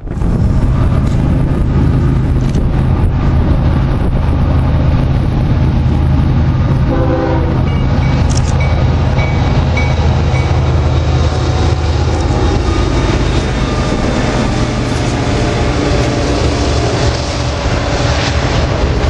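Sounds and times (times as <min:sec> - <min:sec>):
diesel locomotive engine rumble: 0:00.0 - 0:19.0
steel wheels rolling on rails: 0:00.0 - 0:19.0.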